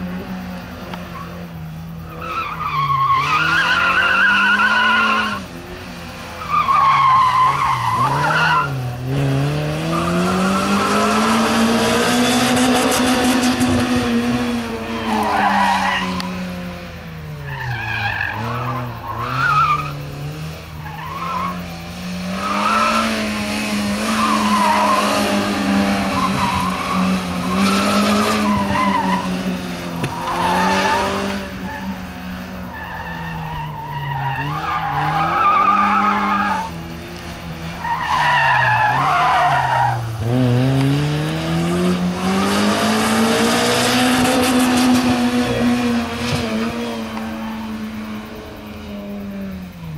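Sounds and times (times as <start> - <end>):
tyres squealing: 2.0 - 5.5, 6.3 - 8.9, 24.0 - 36.8, 37.6 - 40.3
car engine revving hard: 7.4 - 15.0, 21.5 - 32.3, 38.3 - 49.2.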